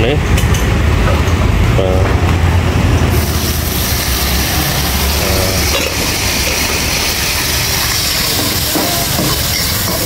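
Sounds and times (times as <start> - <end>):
oil sizzling in a wok: 3.1 - 10.0
seasoning being poured: 3.1 - 10.0.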